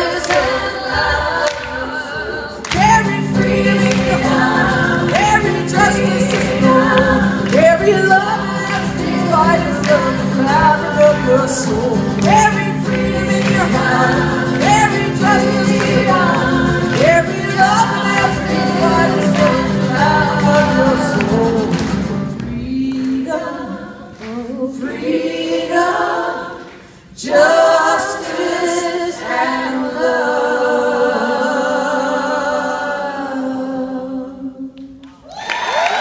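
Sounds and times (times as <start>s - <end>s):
women's chorus singing: 0.0s - 35.0s
acoustic and electric guitars: 2.7s - 24.4s.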